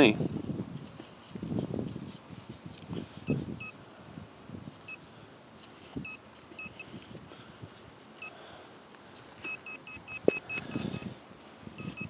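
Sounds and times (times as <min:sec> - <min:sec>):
metal detector beeping: 0:03.2 - 0:03.8, 0:06.0 - 0:06.9, 0:09.4 - 0:11.2, 0:11.8 - 0:12.0.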